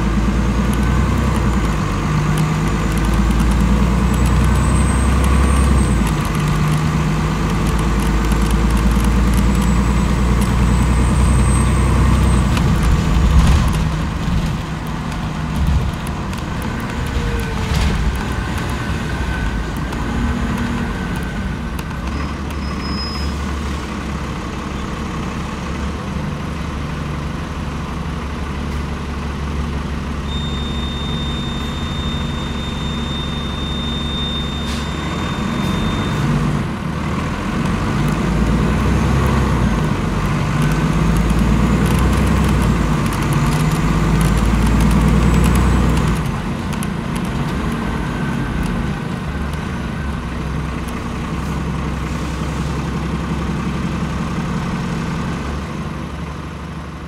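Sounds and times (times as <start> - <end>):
diesel bus engine idling: 13.9 - 30.4.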